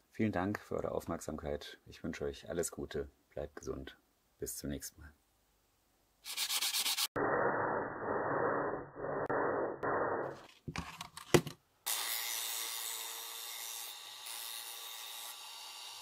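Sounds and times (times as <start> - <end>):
sandpaper rubbing by hand: 6.2 - 7.1.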